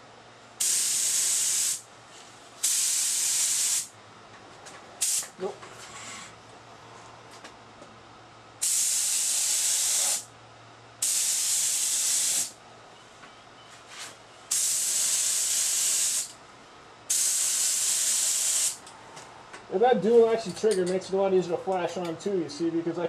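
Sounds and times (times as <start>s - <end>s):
spray gun hissing: 0.6s - 1.8s, 2.6s - 3.9s, 5.0s - 5.3s, 8.6s - 10.3s, 11.0s - 12.6s, 14.5s - 16.3s, 17.1s - 18.8s.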